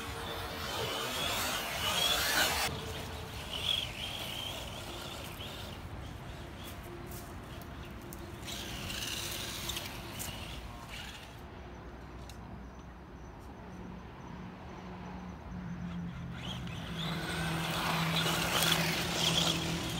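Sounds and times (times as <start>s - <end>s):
toy car motor whine: 0.0s - 6.7s, 7.5s - 11.4s, 16.1s - 19.9s
tyres on loose dirt: 0.0s - 11.4s, 16.1s - 19.9s.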